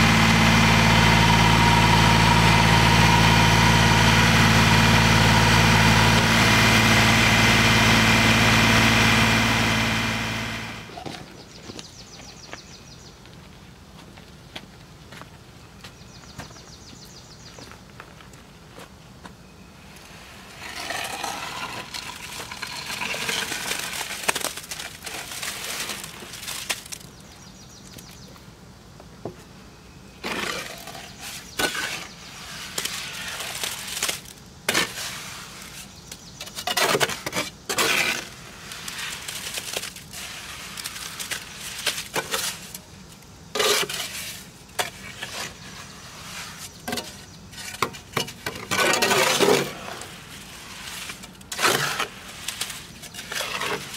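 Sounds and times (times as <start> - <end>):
concrete sliding from wheelbarrow: 0.0 - 11.2, 20.1 - 26.8, 30.2 - 36.0, 36.6 - 42.8, 43.5 - 53.9.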